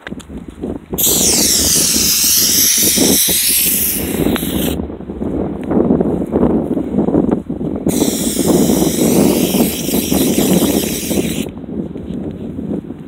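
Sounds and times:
aerosol can spraying hiss: 1.0 - 4.8, 7.9 - 11.5.

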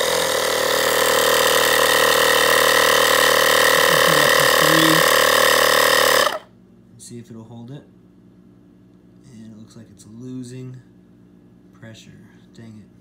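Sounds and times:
electric air compressor running: 0.0 - 6.5.

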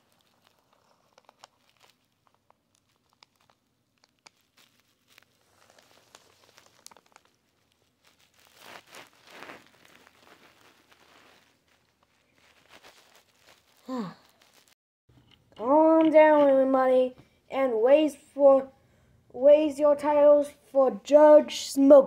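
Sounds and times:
paper rustling: 0.0 - 14.8.

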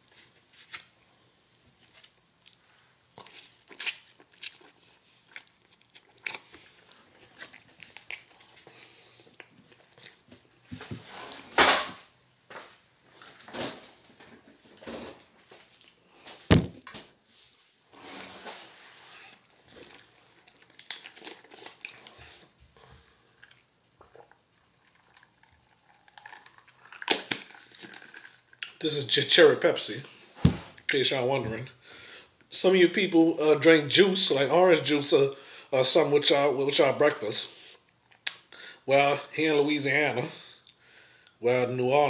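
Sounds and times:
person chewing: 1.8 - 10.6, 19.3 - 28.8, 37.7 - 38.5.

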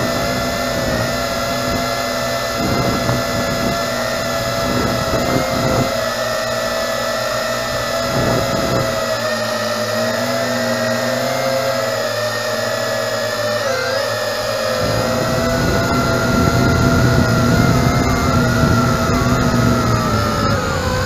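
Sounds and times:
wind rumble on microphone: 0.0 - 9.2, 14.7 - 21.0
drone propellers whining: 0.0 - 21.0.

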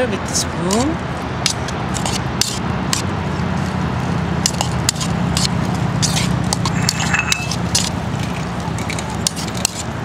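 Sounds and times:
steady low rumble: 5.6 - 8.9
spoon scraping plastic bowl: 6.0 - 7.9.

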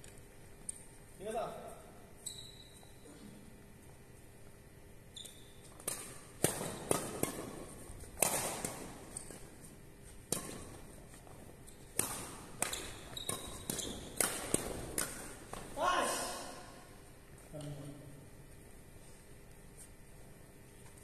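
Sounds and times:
shoe squeaks: 2.2 - 3.1, 5.1 - 5.8, 12.7 - 14.2
rackets hitting shuttlecock: 5.6 - 15.8.

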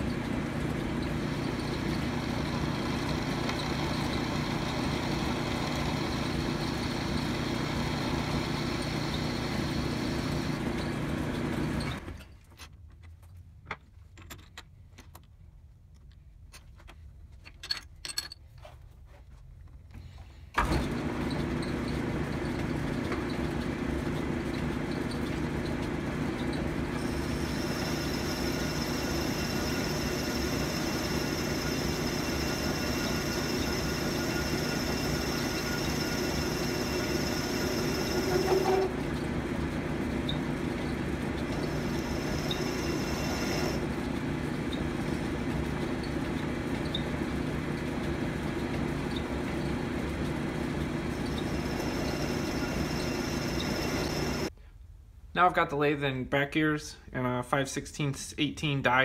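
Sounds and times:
metal lathe humming: 0.0 - 11.9, 26.4 - 44.0, 51.1 - 54.5
high-pitched whine: 27.5 - 38.9, 51.4 - 54.5.

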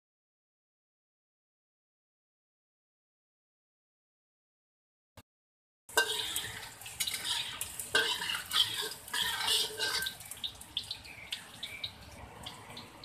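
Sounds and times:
spatula scraping a wok: 5.9 - 10.3
oil popping: 5.9 - 13.0
oil sizzling: 5.9 - 13.0.

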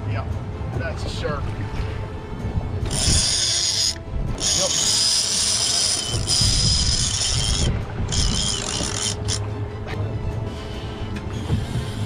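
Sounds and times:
fishing reel gears whirring: 2.8 - 9.4.

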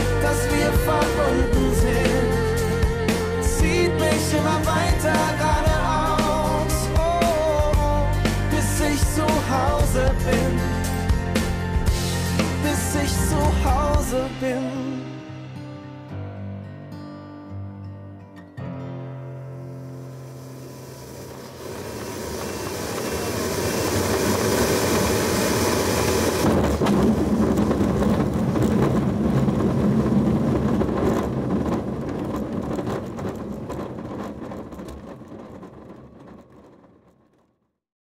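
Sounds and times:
wheel rumbling over grass: 0.0 - 14.5, 20.1 - 37.6
airflow rushing past glider: 20.1 - 37.2
glider touching down: 20.6 - 37.5.

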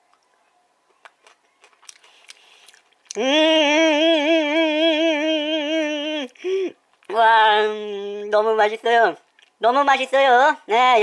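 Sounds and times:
man chewing with crunchy clicks: 0.0 - 3.4, 9.2 - 9.6.

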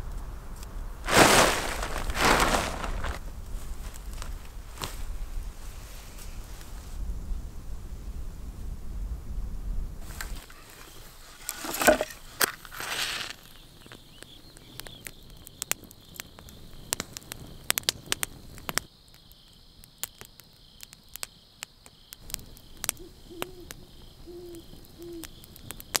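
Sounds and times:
campfire crackling and popping: 0.0 - 6.8, 10.0 - 26.0
crickets chirring: 1.1 - 6.0, 10.0 - 26.0
owl hooting: 23.0 - 25.4.

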